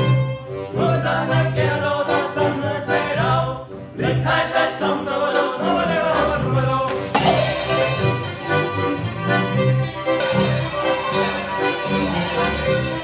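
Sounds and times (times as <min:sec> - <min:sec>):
button accordion: 0:00.0 - 0:07.1, 0:08.0 - 0:13.0
men singing together: 0:00.7 - 0:07.5
bowed strings: 0:06.6 - 0:13.0.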